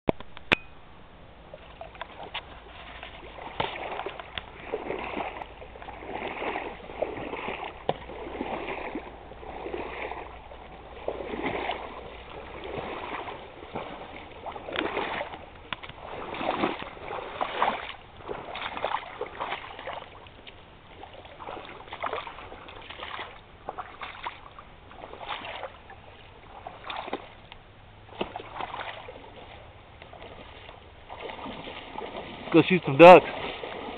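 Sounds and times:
wading through shallow water: 0:00.2 - 0:33.9
decoys tossed onto water: 0:01.6 - 0:10.3, 0:28.1 - 0:33.9.

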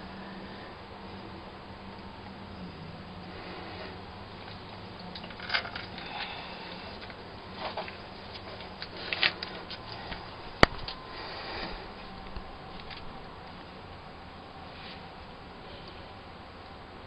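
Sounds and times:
rustles and scrapes: 0:03.2 - 0:13.9, 0:14.6 - 0:16.2.

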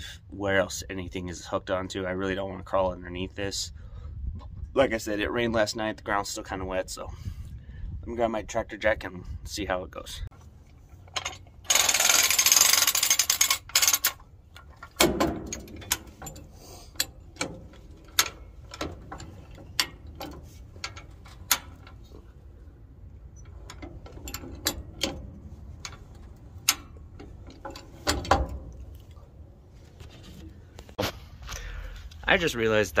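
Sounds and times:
jack ratchet clicking: 0:11.2 - 0:14.2.

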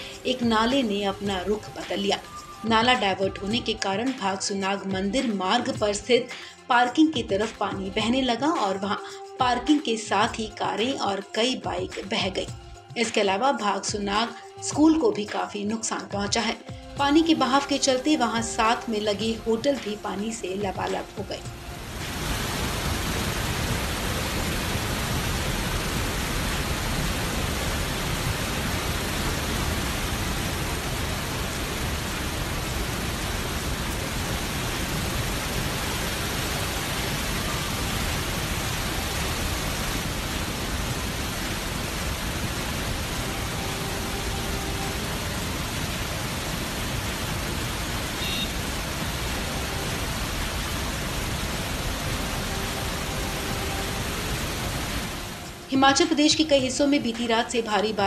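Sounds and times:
water rushing over rocks: 0:21.5 - 0:55.7.

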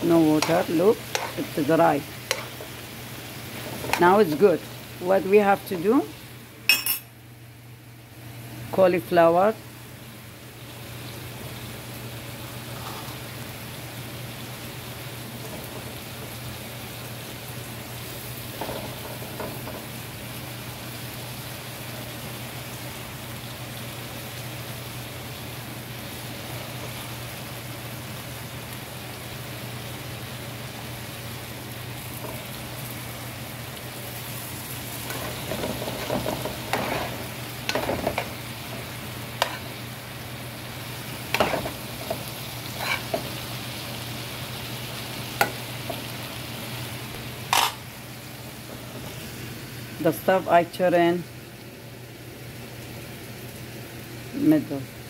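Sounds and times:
vegetables sizzling in a pan: 0:00.0 - 0:55.0
metal spoon stirring a pan: 0:00.2 - 0:01.6, 0:02.3 - 0:02.7, 0:34.9 - 0:39.8, 0:41.2 - 0:43.4.

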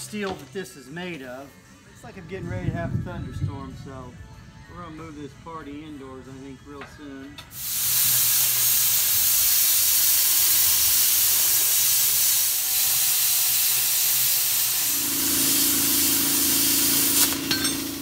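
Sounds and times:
plasma cutter hiss: 0:07.5 - 0:18.0.

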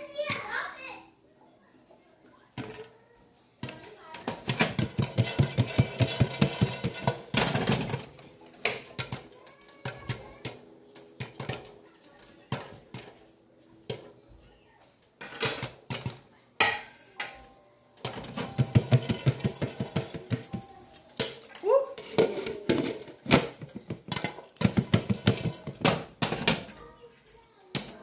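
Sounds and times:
popcorn popping: 0:03.6 - 0:13.2, 0:15.2 - 0:26.8
kernels rattling in shaken pan: 0:04.3 - 0:10.0, 0:18.0 - 0:20.6, 0:21.2 - 0:26.5.

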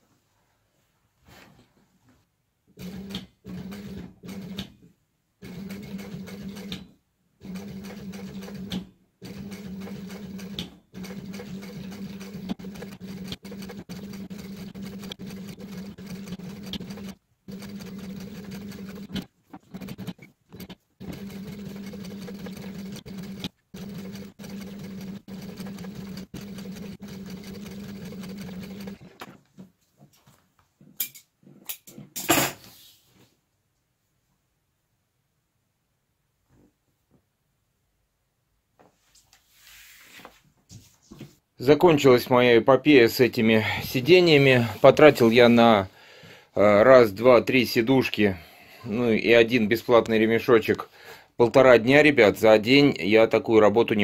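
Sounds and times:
sewing machine stitching: 0:02.8 - 0:04.8, 0:05.4 - 0:29.3.

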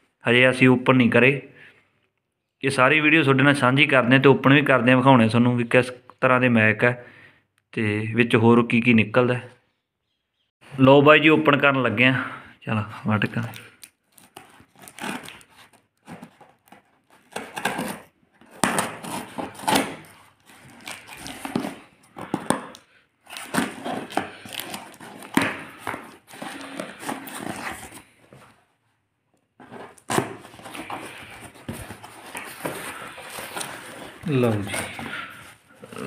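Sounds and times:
knife slitting packing tape: 0:14.1 - 0:21.8
cardboard flaps ripping: 0:14.3 - 0:21.9.

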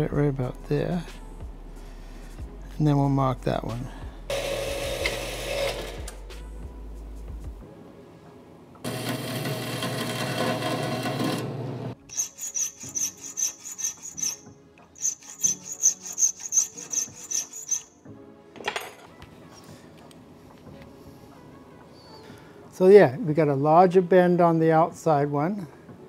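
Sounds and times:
file scraping on metal rod: 0:12.1 - 0:17.9.

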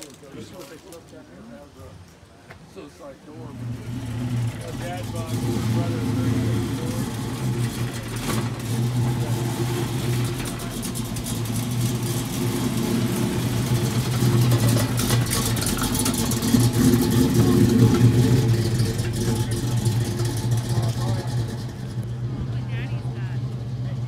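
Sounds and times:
car engine idling: 0:03.3 - 0:24.0.

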